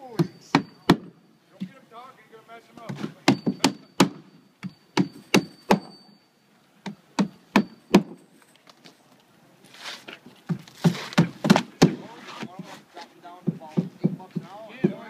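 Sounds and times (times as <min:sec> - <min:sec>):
hammer driving roofing nails: 0:02.9 - 0:06.0, 0:06.8 - 0:08.2, 0:10.5 - 0:12.1
shingle rustling scrape: 0:08.2 - 0:13.2.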